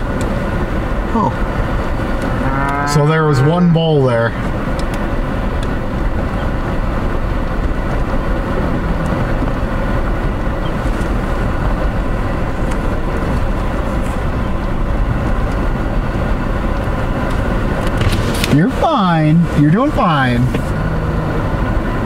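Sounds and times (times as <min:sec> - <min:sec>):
car engine running: 0:00.0 - 0:22.0.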